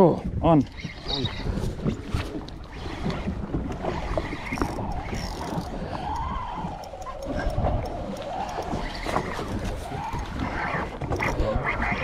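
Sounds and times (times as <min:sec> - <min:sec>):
wind and water noise: 0:00.0 - 0:12.0
boat motor running: 0:00.7 - 0:11.7.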